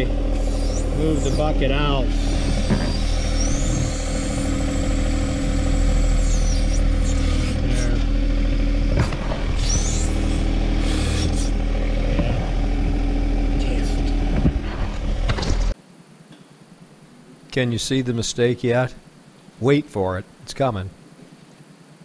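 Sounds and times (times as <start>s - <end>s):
high hydraulic whines: 0.0s - 15.8s
tractor diesel engine running: 0.0s - 15.8s.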